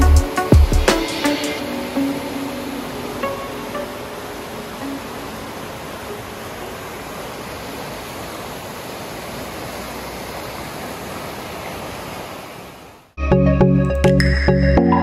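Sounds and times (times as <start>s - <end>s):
music with a beat: 0.0s - 1.7s, 13.2s - 15.0s
river rushing: 0.2s - 13.2s.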